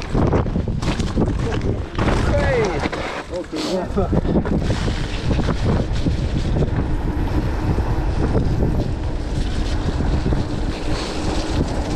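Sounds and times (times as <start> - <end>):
wind buffeting microphone: 0.0 - 3.1, 3.8 - 11.9
bike knocks and rattles: 0.0 - 3.5
steady rumble: 0.0 - 11.9.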